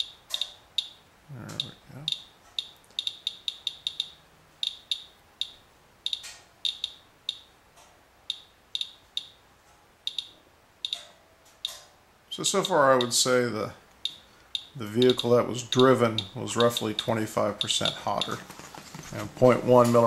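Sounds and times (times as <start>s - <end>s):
geiger counter chirping: 0.0s - 1.0s, 1.6s - 7.5s, 8.3s - 9.4s, 10.0s - 11.0s, 14.0s - 18.4s.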